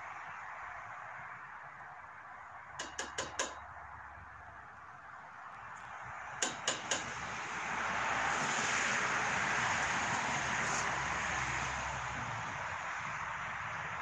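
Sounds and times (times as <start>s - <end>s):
light hard clicks and taps: 2.8s - 3.7s
steady hiss: 6.6s - 11.6s.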